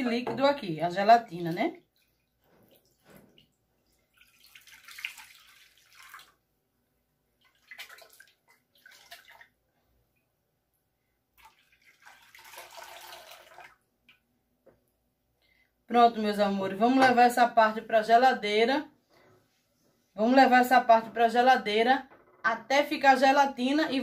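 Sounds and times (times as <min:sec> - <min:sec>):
liquid pouring into glass dish: 0:11.4 - 0:13.8.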